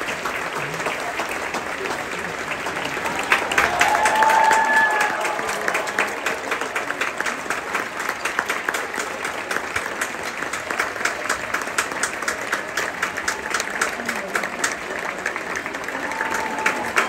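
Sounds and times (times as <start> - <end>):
audience applauding: 0.0 - 17.0
held cheer: 3.0 - 7.1, 15.8 - 17.0.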